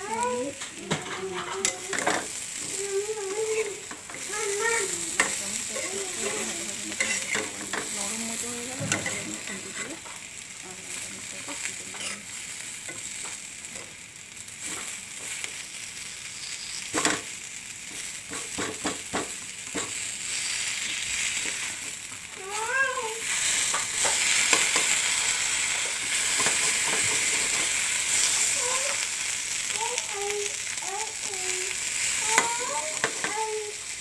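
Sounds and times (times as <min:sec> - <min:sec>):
vegetables sizzling in a pan: 0:00.0 - 0:34.0
spatula knocking and scraping pan: 0:00.8 - 0:02.3, 0:05.1 - 0:08.0, 0:08.7 - 0:10.2, 0:18.3 - 0:20.0, 0:25.8 - 0:27.7, 0:32.2 - 0:33.4.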